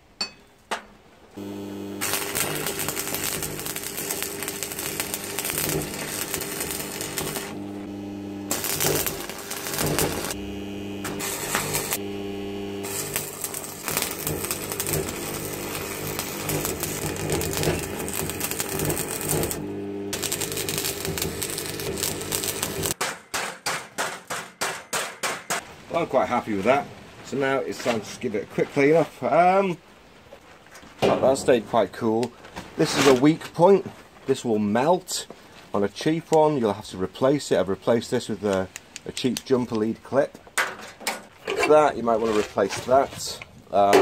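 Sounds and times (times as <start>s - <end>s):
arc welding crackle: 1.4s - 23.0s
welder low hum: 1.4s - 23.0s.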